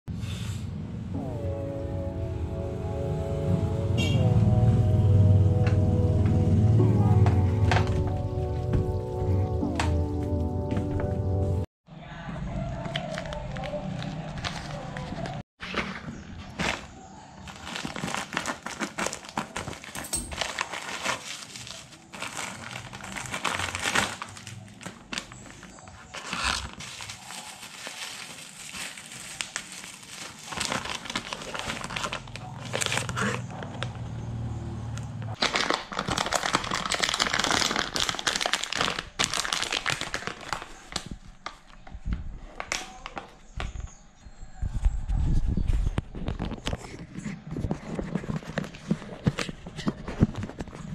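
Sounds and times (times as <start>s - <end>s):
plastic crinkling and rustling: 12.8s - 33.9s, 35.3s - 43.6s
scissors cutting plastic mailer: 12.8s - 33.9s.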